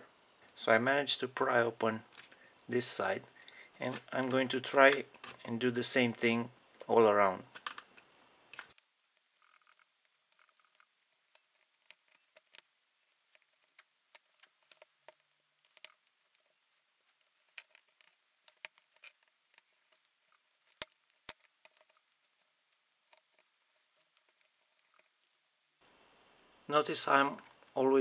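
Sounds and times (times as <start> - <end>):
plastic clicking and cracking: 7.5 - 25.4.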